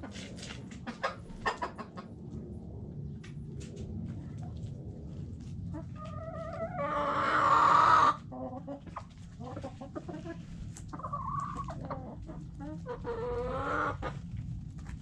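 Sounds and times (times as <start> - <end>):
chicken clucking: 0.0 - 2.2, 5.7 - 14.2.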